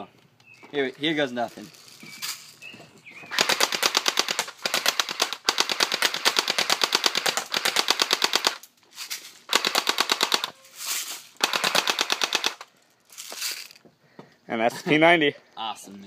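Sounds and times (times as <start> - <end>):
bb gun full auto fire: 3.3 - 8.6, 9.5 - 10.6, 11.4 - 12.6.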